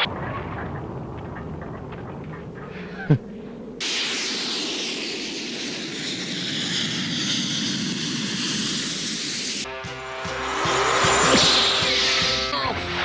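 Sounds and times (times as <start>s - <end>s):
rushing aircraft-like roar: 0.0s - 13.0s
quick downward zip: 2.9s - 13.0s.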